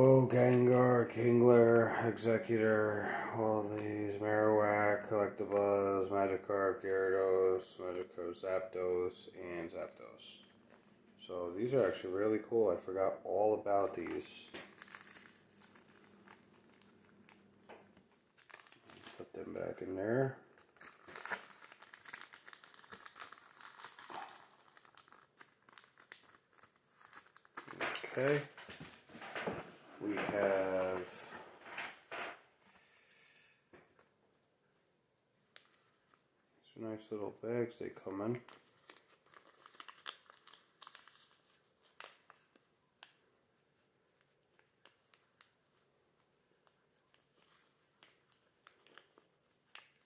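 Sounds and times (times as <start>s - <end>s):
plastic bag crinkling: 13.8s - 32.4s.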